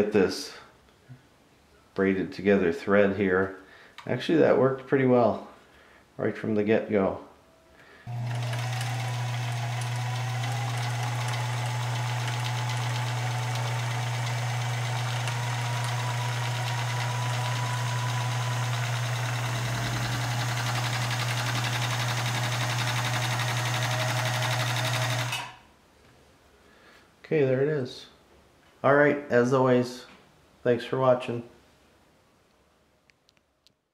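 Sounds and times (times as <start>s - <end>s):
sewing machine motor hum: 8.1s - 25.6s.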